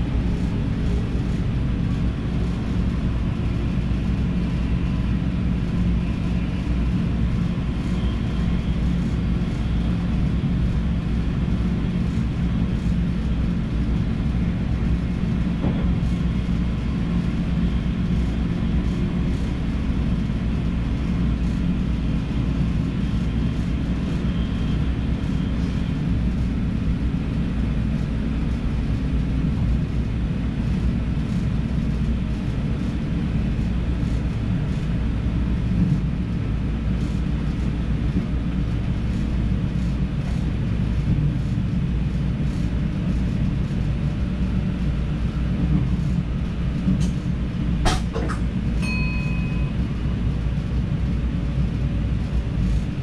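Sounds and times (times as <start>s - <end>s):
train drive hum: 0.0s - 53.0s
train wheels rumbling on rails: 0.0s - 53.0s.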